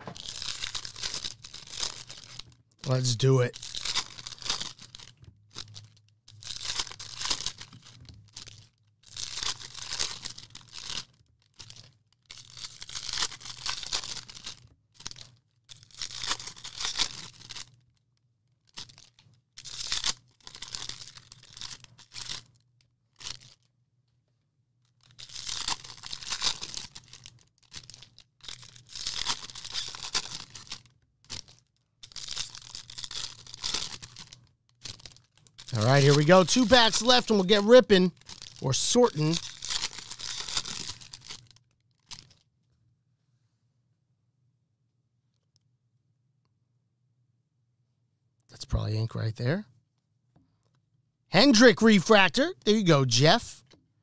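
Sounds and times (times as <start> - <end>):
packaging tearing and crinkling: 0.0 - 17.8, 18.7 - 22.6, 23.2 - 23.6, 25.0 - 42.4.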